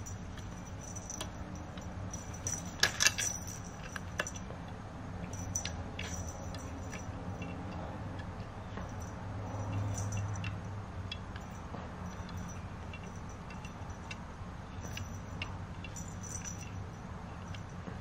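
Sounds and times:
light jingling clinks: 0.0s - 4.6s, 5.2s - 7.9s, 8.6s - 18.0s
low steady hum: 0.0s - 18.0s.

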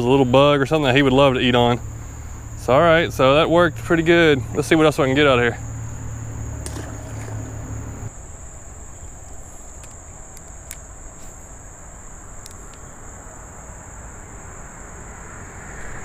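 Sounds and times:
insects droning: 0.0s - 16.0s
faint clicks: 9.2s - 11.4s, 12.4s - 12.9s.

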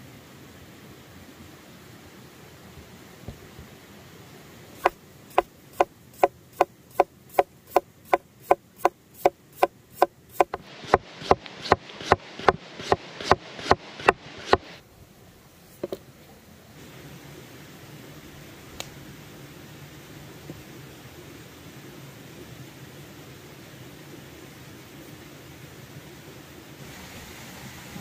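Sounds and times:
knife slicing potato on board: 4.8s - 14.7s
knife tapping on board: 10.4s - 10.6s.

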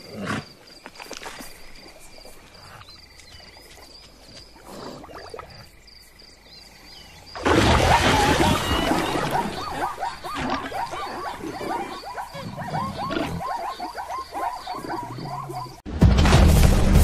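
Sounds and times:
cartoon yelping calls: 7.6s - 15.8s.

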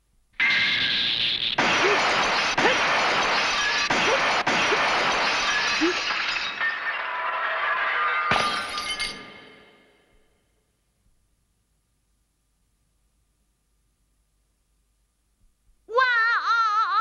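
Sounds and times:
glass shattering: 0.4s - 10.0s.

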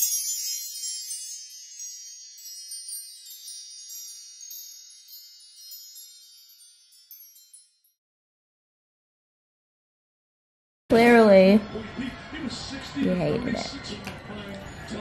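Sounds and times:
metal chimes tinkling: 0.0s - 8.0s.

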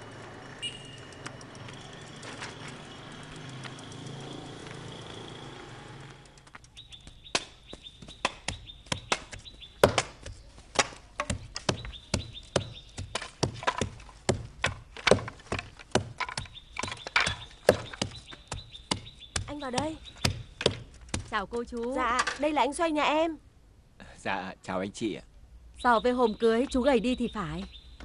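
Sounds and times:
outdoor ambience: 0.0s - 28.0s
wooden pestle striking stone mortar: 7.3s - 21.3s
wood being split: 8.2s - 19.5s.

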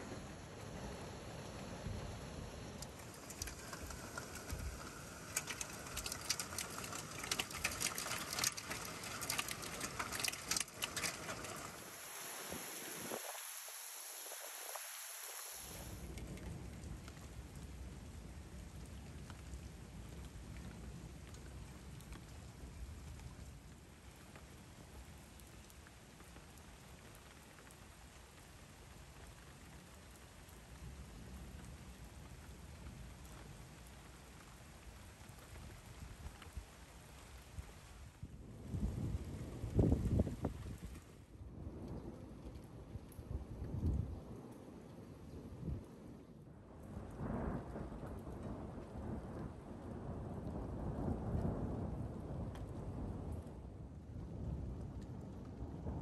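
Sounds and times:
heavy rain and hail hiss: 0.0s - 42.1s, 46.7s - 53.4s
hailstones clicking on hard surfaces: 2.8s - 17.8s.

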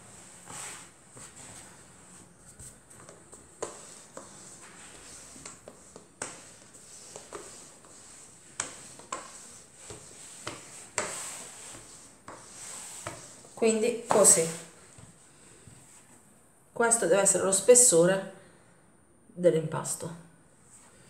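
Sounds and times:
rolling pin rolling dough: 0.0s - 15.2s.

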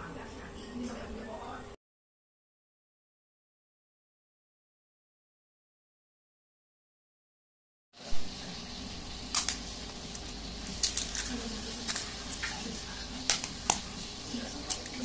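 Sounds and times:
eggshells tapping and cracking: 10.6s - 11.3s.

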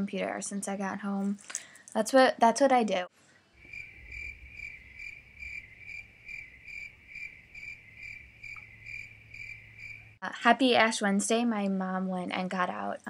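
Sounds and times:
crickets chirping: 3.6s - 10.2s.

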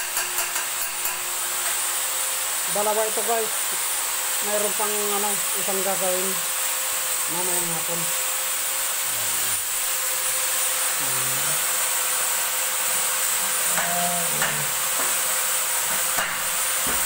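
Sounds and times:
arc welding hiss: 0.0s - 17.0s.

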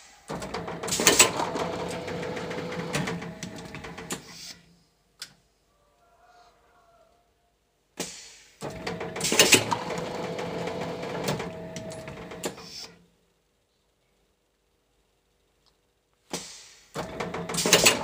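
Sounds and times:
sharp air burst: 4.1s - 4.7s, 8.0s - 8.6s, 12.5s - 13.0s, 16.3s - 17.0s.

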